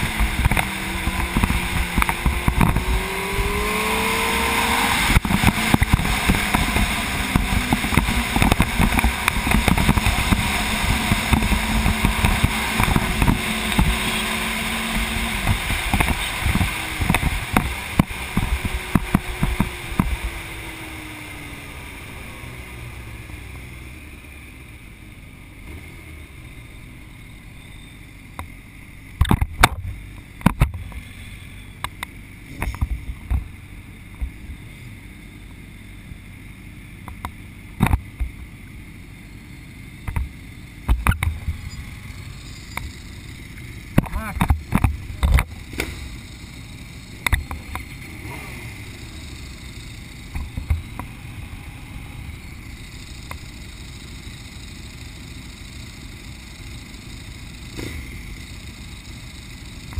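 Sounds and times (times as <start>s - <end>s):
wind noise on microphone: 0.0s - 20.4s
motorcycle engine: 0.0s - 59.9s.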